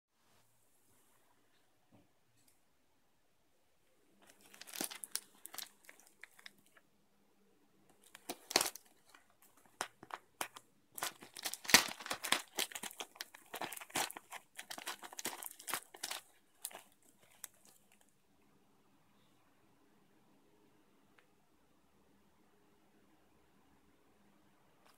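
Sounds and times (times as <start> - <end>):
plastic bag crinkling: 4.2 - 6.8, 7.9 - 18.0.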